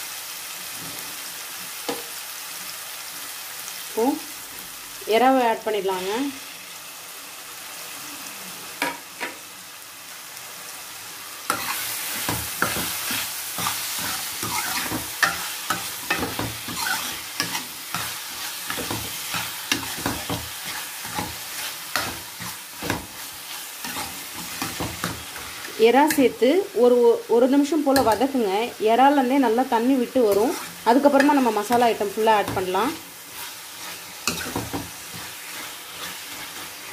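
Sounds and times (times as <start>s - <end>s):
prawns sizzling in a pan: 0.0s - 36.9s
ladle scraping a pan: 33.3s - 36.9s.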